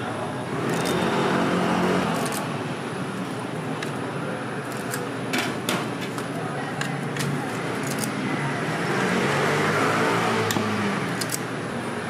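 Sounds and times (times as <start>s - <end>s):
street traffic: 0.0s - 12.0s
sharp metallic clicks: 10.5s - 11.5s.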